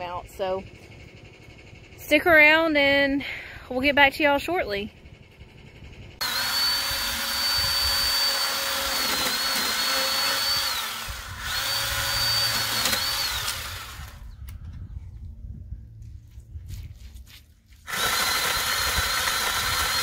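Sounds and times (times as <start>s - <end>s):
pole saw motor whine: 4.9s - 14.6s, 17.9s - 20.0s.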